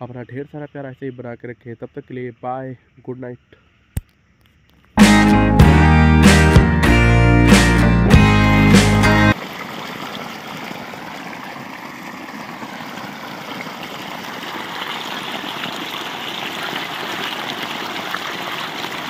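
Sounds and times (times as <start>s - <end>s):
water gushing from pipe: 9.3s - 19.0s
water splashing on ground: 9.3s - 19.0s.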